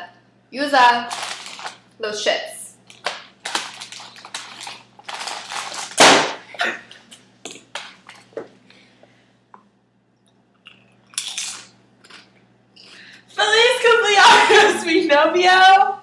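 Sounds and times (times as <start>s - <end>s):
plastic chip bag rustling: 1.0s - 1.8s, 2.9s - 6.2s
chip crunch: 1.1s - 1.8s, 2.9s - 6.4s, 10.6s - 12.4s.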